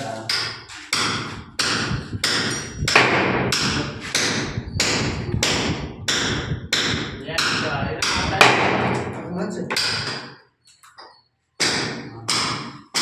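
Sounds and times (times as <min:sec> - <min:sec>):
hammer knocking on wooden block: 0:00.3 - 0:10.3, 0:11.6 - 0:13.0.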